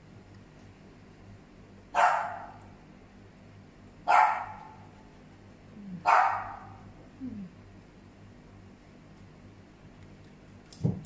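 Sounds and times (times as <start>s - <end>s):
dog barking: 2.0s - 2.7s, 4.0s - 4.9s, 6.0s - 6.9s.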